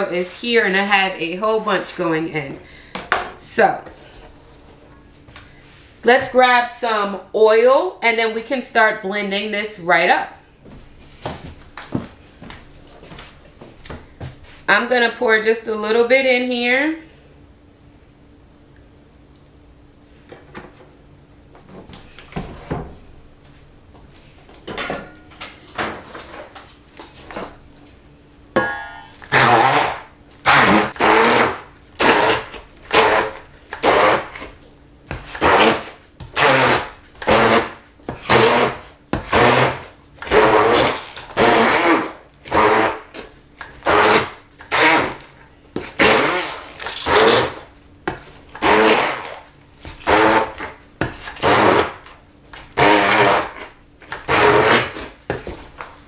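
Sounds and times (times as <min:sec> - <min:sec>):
immersion blender pulsing: 0:29.2 - 0:34.4.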